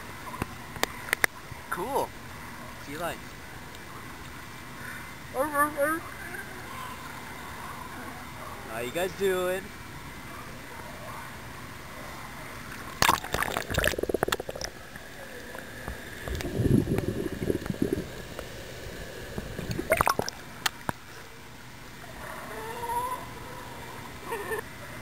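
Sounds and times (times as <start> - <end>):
muffled underwater gurgle: 12.7 - 21.1
sea water splashing: 12.7 - 21.2
sea lion call: 22.1 - 24.6.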